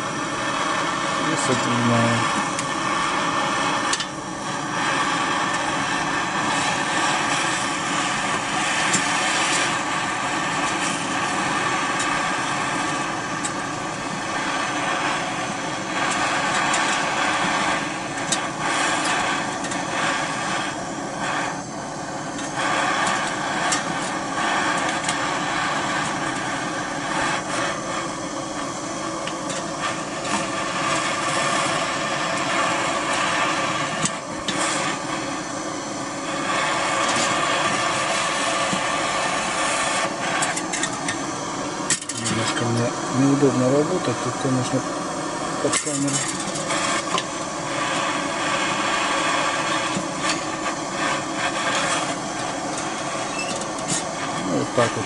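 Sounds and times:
gas torch hissing: 0.0 - 55.0.

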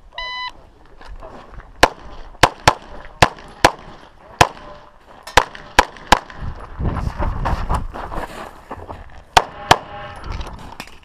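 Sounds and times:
pistol shots: 1.8 - 6.4.

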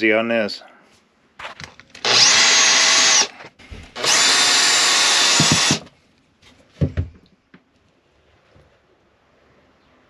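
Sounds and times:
cordless drill driving screws: 2.0 - 3.3, 4.0 - 5.9.

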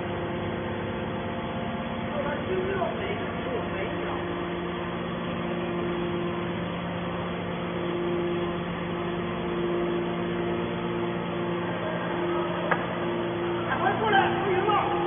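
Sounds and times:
electric motor and pump humming: 0.0 - 15.0
high whine: 0.0 - 15.0.

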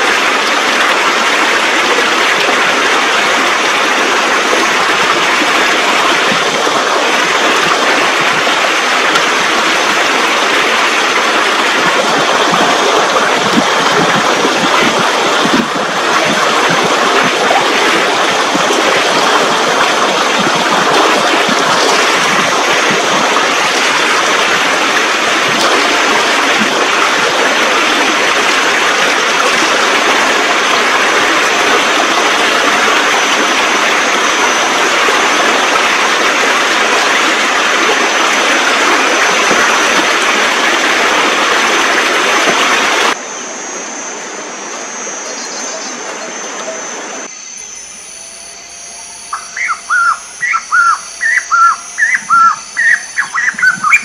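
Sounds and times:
stream rushing over rocks: 0.0 - 43.2
bird chirping: 45.2 - 46.4, 49.3 - 54.0.

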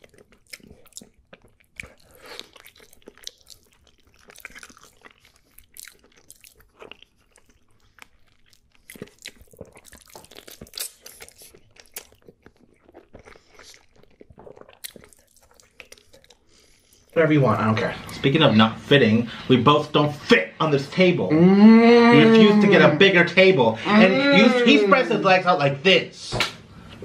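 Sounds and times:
person chewing wetly: 0.0 - 17.2.

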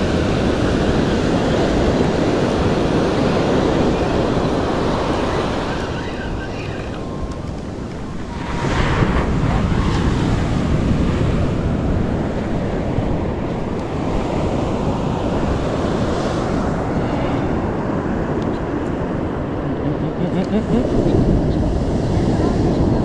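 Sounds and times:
sea waves breaking on beach: 0.0 - 23.0
wind buffeting microphone: 0.0 - 23.0.

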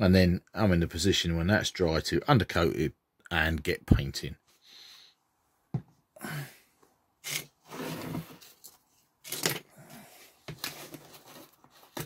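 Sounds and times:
plastic lid scraping: 7.2 - 8.7.

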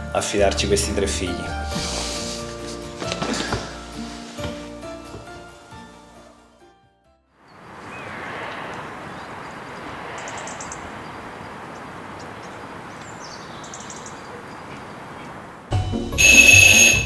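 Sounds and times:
music: 0.0 - 7.4, 15.7 - 17.0
outdoor background noise: 7.4 - 15.8
high bird trills: 7.5 - 15.4.

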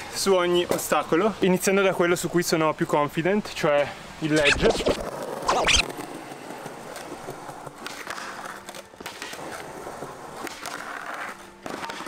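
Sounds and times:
skateboard wheels rolling on concrete: 0.0 - 12.0
quick swoosh: 4.4 - 5.9
skateboard clacks: 5.0 - 12.0.

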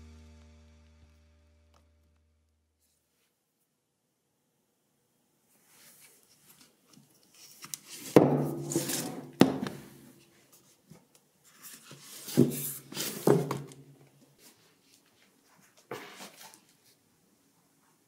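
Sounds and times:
books knocking on shelf: 8.2 - 8.7, 9.4 - 9.9.

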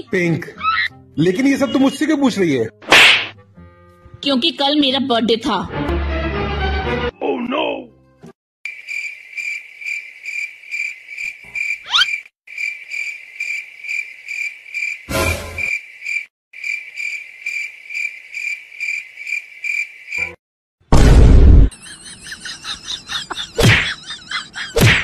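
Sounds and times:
cricket chirping: 8.7 - 20.3.

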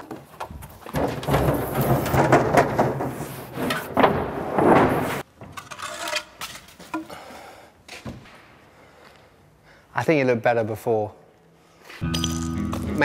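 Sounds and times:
wooden panels scraping on concrete: 0.6 - 7.0.

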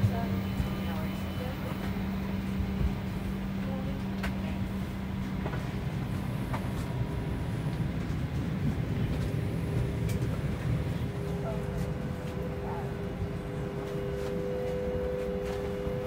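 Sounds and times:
aircraft cabin air system hum: 0.0 - 16.0
low steady tone: 9.3 - 16.0.

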